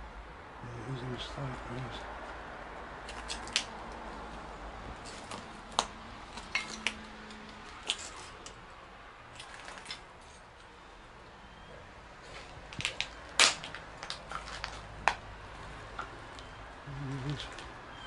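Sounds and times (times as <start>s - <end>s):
footsteps crunching on rubble: 12.4s - 15.0s.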